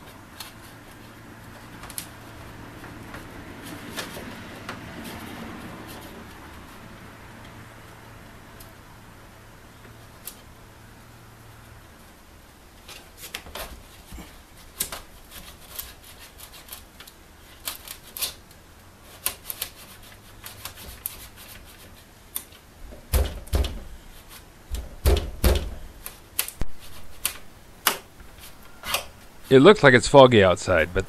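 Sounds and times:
heavier knocks: 0:24.7 - 0:25.9.

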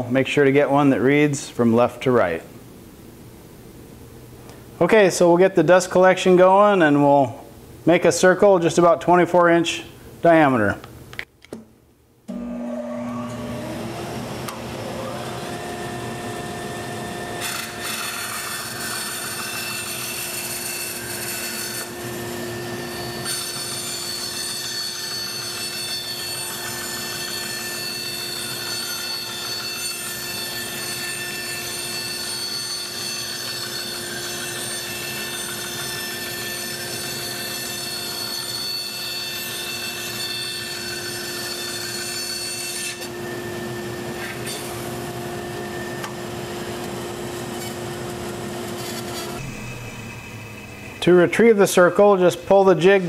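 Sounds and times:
dust collector running: 0:12.3 - 0:17.8, 0:43.1 - 0:53.0
bandsaw cutting plywood: 0:12.3 - 0:50.4.

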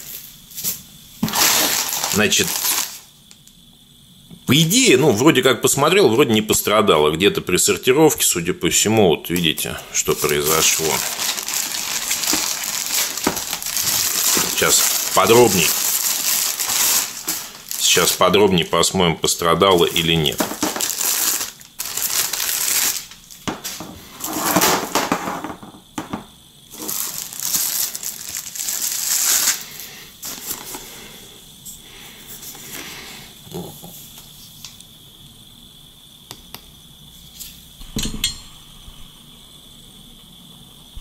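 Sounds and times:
plastic bag crinkling: 0:01.2 - 0:03.1, 0:10.0 - 0:18.8, 0:19.5 - 0:25.1, 0:26.7 - 0:30.8.

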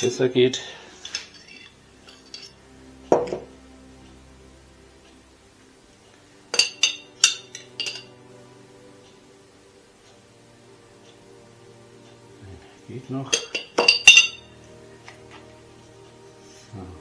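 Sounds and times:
quiet background music: 0:00.0 - 0:17.0
utensils clinking against dishes: 0:01.0 - 0:02.6, 0:06.6 - 0:08.1, 0:13.3 - 0:14.5.

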